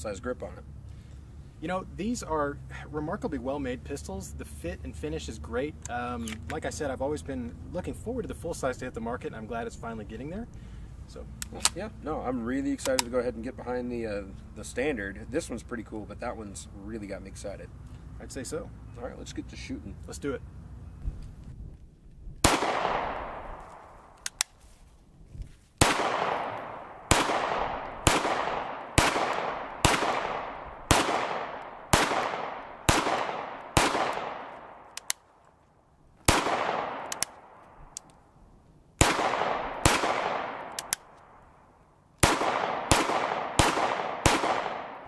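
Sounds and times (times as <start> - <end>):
pistol shots echoing: 22.4 - 23.7, 25.8 - 35.2, 36.2 - 37.6, 39.0 - 41.1, 42.2 - 45.0.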